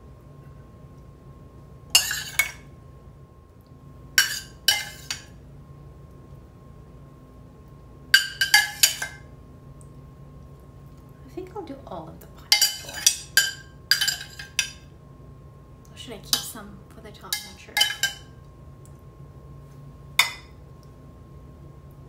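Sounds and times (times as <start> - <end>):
metal spoon clinking on pans: 2.0 - 2.6, 4.2 - 5.3, 8.2 - 9.2, 12.5 - 14.8, 17.3 - 18.3, 20.2 - 20.6.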